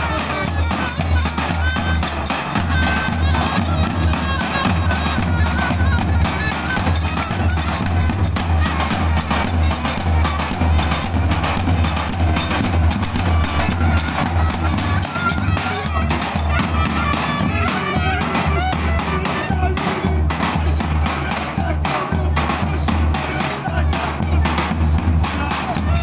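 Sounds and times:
wind instrument melody: 0:00.0 - 0:20.2, 0:25.4 - 0:26.0
crowd voices calling out: 0:00.0 - 0:26.0
bass drums beating: 0:02.6 - 0:16.6.

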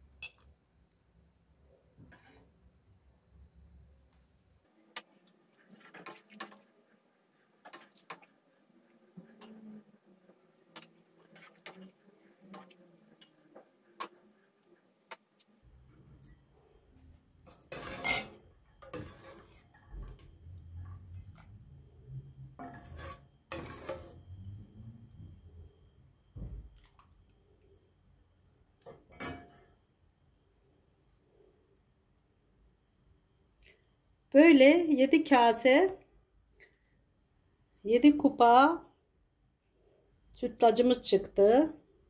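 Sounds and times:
ladle scraping pot: 0:02.0 - 0:02.6, 0:17.4 - 0:20.2, 0:22.6 - 0:24.3.

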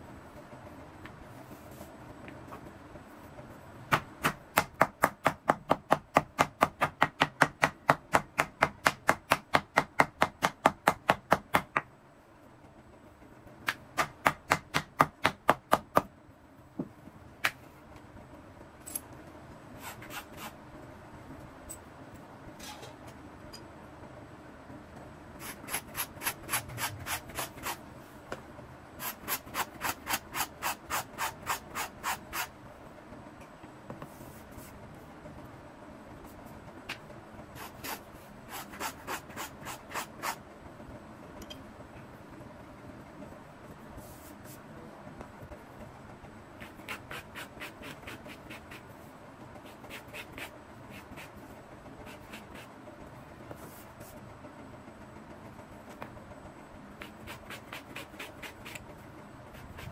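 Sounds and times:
wooden mallet pounding leather: 0:03.9 - 0:11.9.

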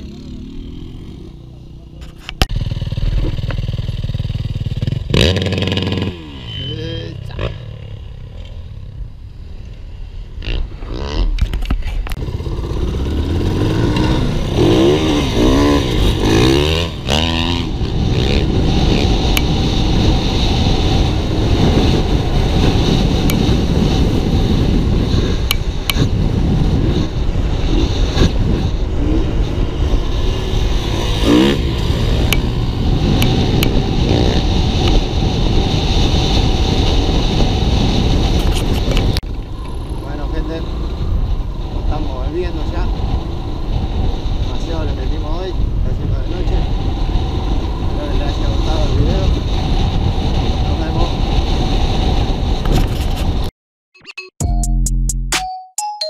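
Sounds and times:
dirt bike engine revving: 0:00.0 - 0:01.8, 0:02.4 - 0:08.7, 0:10.4 - 0:11.4, 0:12.2 - 0:44.8
wind rushing over microphone: 0:02.2 - 0:53.5.

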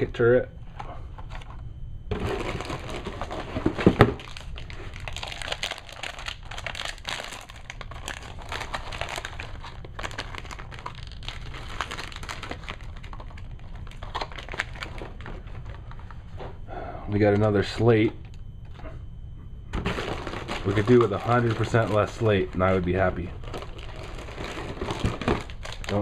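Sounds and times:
plastic wrapping crinkling and tearing: 0:02.1 - 0:16.1, 0:19.8 - 0:26.0.

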